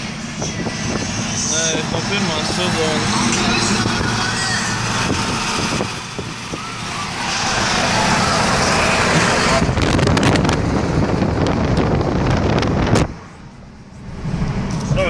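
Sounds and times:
road and engine rumble: 0.0s - 15.0s.

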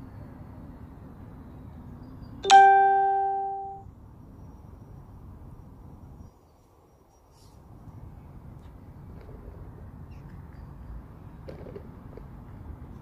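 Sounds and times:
faint outdoor background noise: 0.0s - 13.0s
electronic ding: 2.4s - 3.8s.

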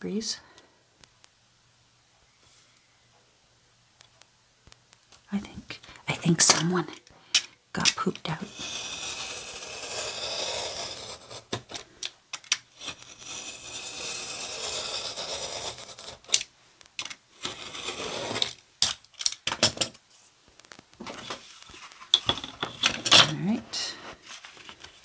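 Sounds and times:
craft knife scraping through card: 8.4s - 11.8s, 12.7s - 16.4s, 17.4s - 18.6s.

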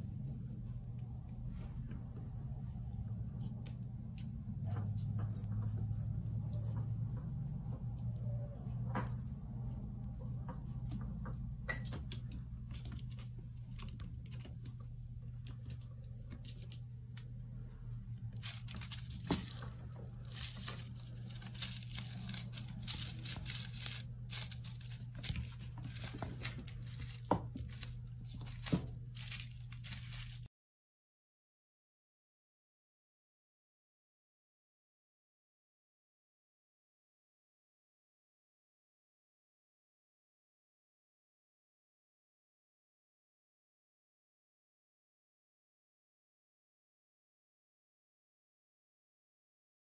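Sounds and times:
low hum: 0.0s - 30.5s
kitten playing with toy clicks: 18.2s - 30.5s.

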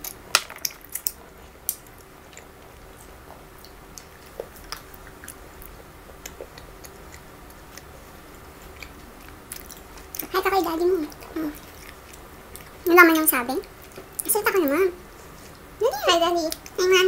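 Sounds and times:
chewing chocolate: 3.2s - 10.4s, 11.0s - 14.3s.

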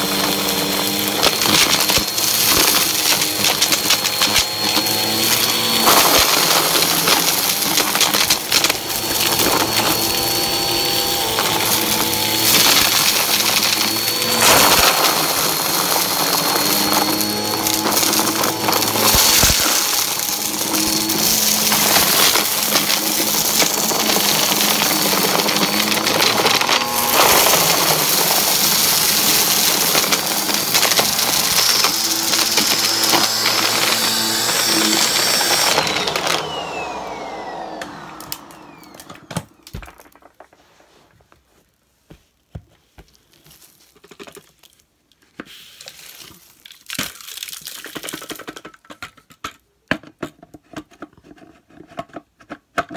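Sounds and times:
vacuum motor winding down: 0.0s - 39.8s
upright vacuum running: 0.0s - 40.1s
debris crackling and rattling: 0.8s - 37.7s
debris tumbling out: 5.4s - 37.5s, 38.2s - 40.6s.

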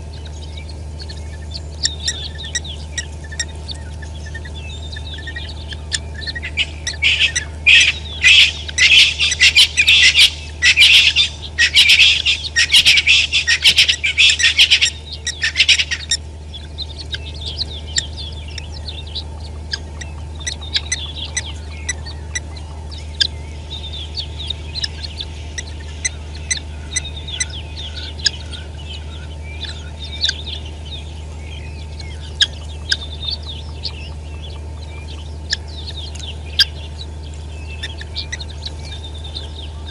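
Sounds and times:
guineafowl cackling: 0.0s - 39.9s
low hum: 0.0s - 39.9s
soft chirps and clicks: 31.8s - 39.9s.

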